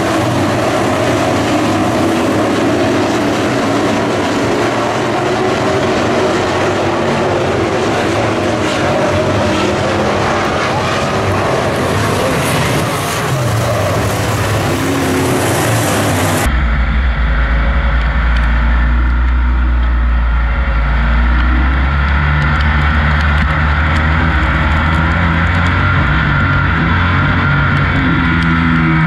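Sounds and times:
race cars on dirt track: 0.0s - 29.0s
race truck engine droning: 0.0s - 29.0s.

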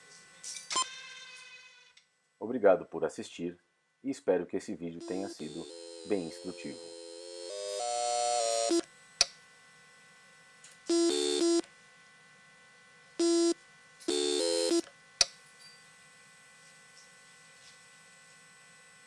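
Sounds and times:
pitched electronic tone: 5.0s - 8.9s, 10.9s - 11.6s, 13.2s - 14.9s.

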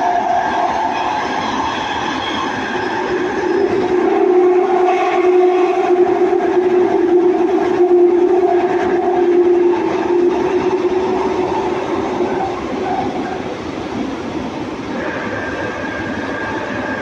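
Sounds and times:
train wheels rumbling on rail: 0.0s - 17.0s
steady humming tone: 3.1s - 13.4s.

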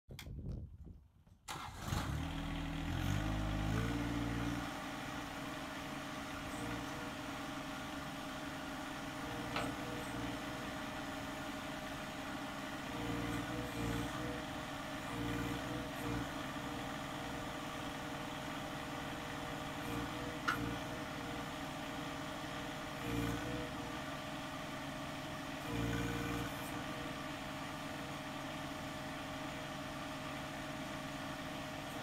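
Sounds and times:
tractor diesel engine running: 1.5s - 32.0s.

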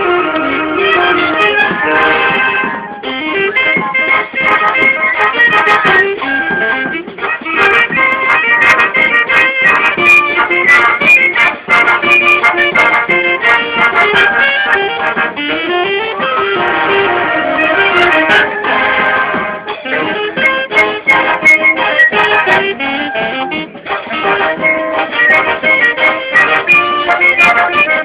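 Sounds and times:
bass drum: 0.0s - 28.0s
flutes and saxophones melody: 0.0s - 28.0s.

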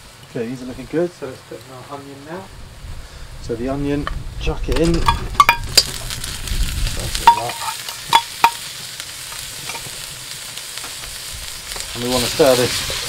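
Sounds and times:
onion sizzling in oil: 0.0s - 13.0s
metallic clinks: 7.2s - 8.6s.

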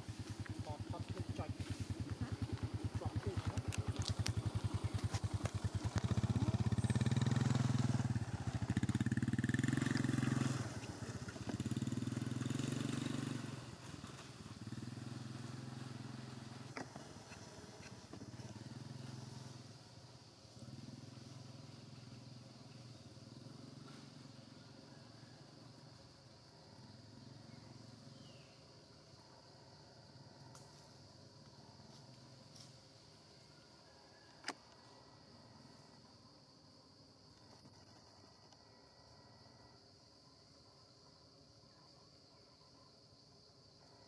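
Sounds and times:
motorcycle engine running: 0.0s - 33.8s.

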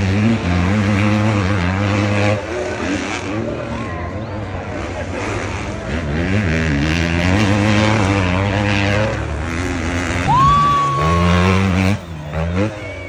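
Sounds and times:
motocross bike engines revving: 0.0s - 13.0s.

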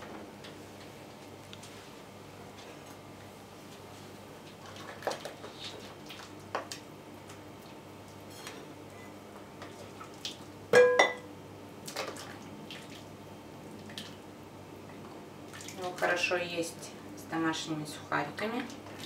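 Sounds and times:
dishes clinking: 10.7s - 11.3s
dishware knocking and clattering: 10.8s - 11.3s.

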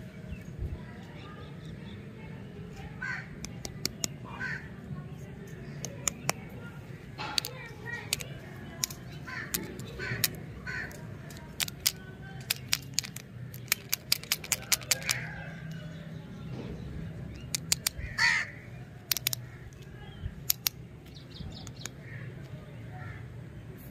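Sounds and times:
lollipops clicking and tapping: 3.3s - 4.2s, 5.7s - 6.6s, 7.2s - 15.9s, 17.3s - 18.2s, 19.0s - 22.0s
bird calling: 7.2s - 12.0s.

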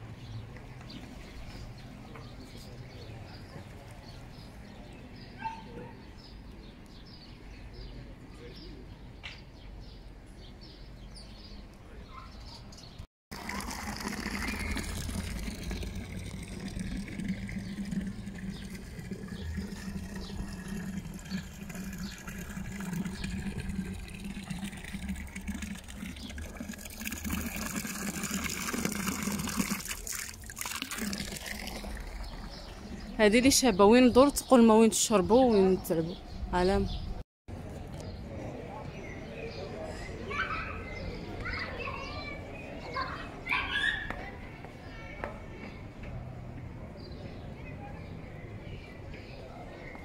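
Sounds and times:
fountain water splashing on stone: 13.3s - 33.2s.

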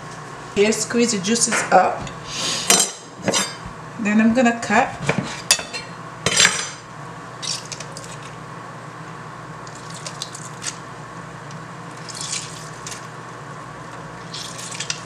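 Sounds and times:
lemon juice squishing and dripping: 9.6s - 10.8s, 11.9s - 13.1s, 14.2s - 15.0s.

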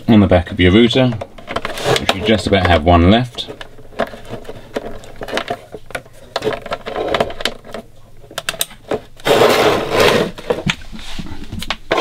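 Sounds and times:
hand rustling and scraping cables: 0.6s - 12.0s
small plastic clicks and knocks: 3.6s - 9.0s.

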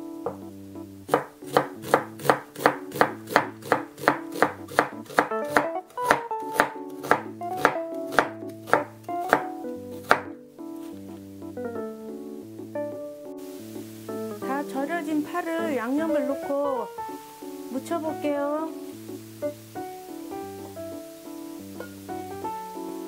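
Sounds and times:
light background music: 0.0s - 23.0s
knife chopping on wooden board: 1.1s - 10.3s.

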